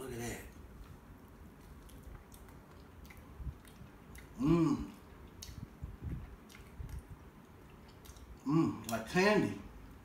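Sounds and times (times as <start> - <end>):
chewing and mouth clicks: 0.5 - 9.0
man humming mmm: 4.4 - 5.0, 8.4 - 8.9.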